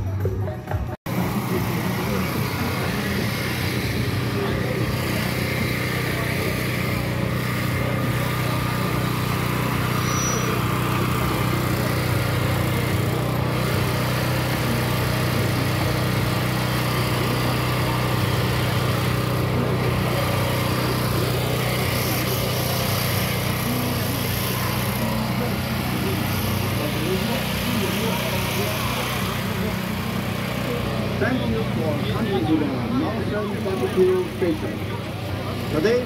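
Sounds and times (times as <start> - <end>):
crowd chattering: 0.0 - 36.0
small engine running: 0.0 - 36.0.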